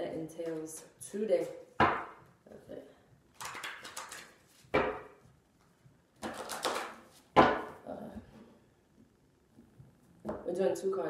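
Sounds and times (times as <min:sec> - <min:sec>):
cards riffle-shuffled: 0:03.4 - 0:04.6.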